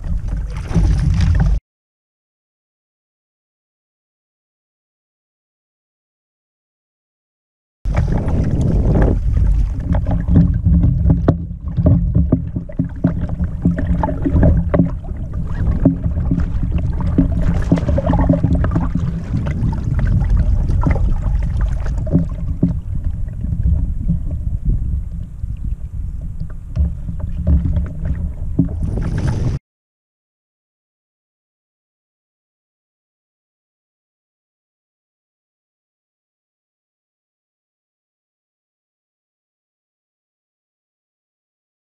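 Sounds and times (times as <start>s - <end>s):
fish splashing: 0.0s - 1.6s, 7.9s - 23.0s
water slapping against boat: 0.0s - 1.6s, 7.9s - 29.6s
wind rumbling on microphone: 0.0s - 1.6s, 7.9s - 29.6s.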